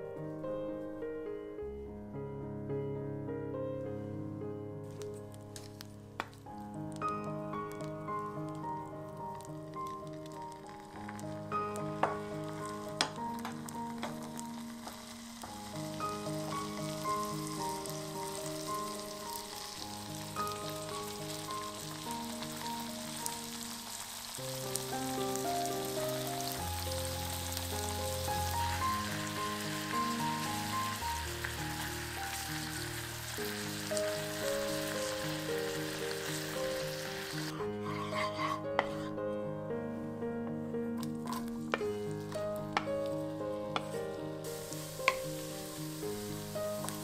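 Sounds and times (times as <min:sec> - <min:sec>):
gentle background music: 0:00.0 - 0:47.0
scallops sizzling in butter: 0:05.0 - 0:39.1, 0:41.0 - 0:47.0.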